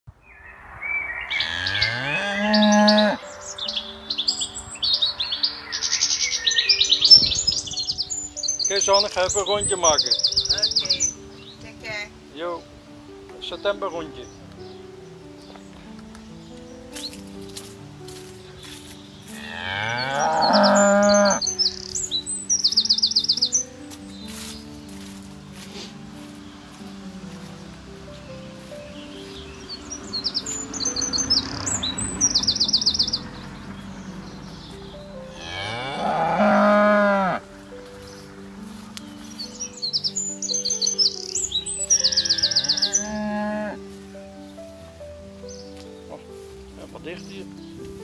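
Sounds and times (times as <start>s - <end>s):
songbirds chirping: 0.1s - 48.0s
cow mooing: 1.4s - 3.2s, 19.4s - 21.4s, 35.3s - 37.4s, 42.0s - 43.8s.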